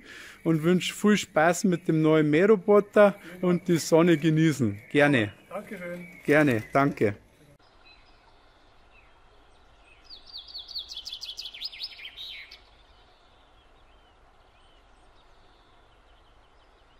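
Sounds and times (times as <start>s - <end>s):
faint hiss: 0.0s - 4.9s
songbird chirping: 0.0s - 16.9s.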